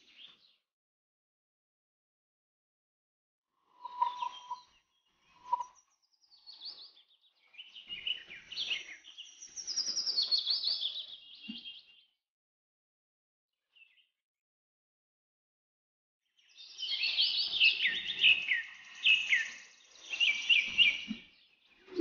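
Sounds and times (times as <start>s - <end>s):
low whistled bird note: 3.8s - 4.7s
birds chirping and singing: 3.8s - 12.1s, 16.4s - 22.0s.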